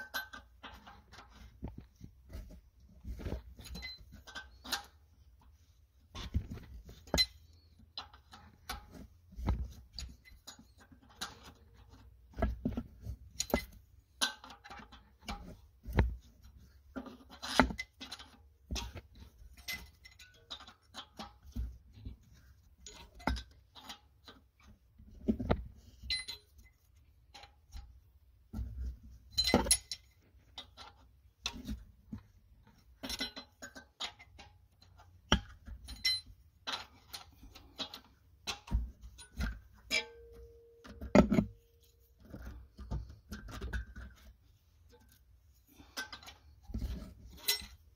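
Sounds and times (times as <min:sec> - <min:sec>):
wrench clinking on engine parts: 0:00.0 - 0:01.1, 0:03.6 - 0:05.0, 0:19.5 - 0:21.4, 0:26.0 - 0:26.7, 0:29.3 - 0:30.8, 0:33.0 - 0:42.4, 0:47.3 - 0:47.9.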